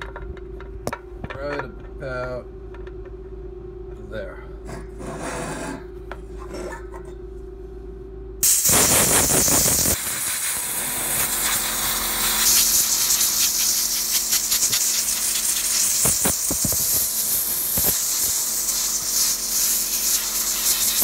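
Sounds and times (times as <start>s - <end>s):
compressed air hissing: 8.4s - 21.0s.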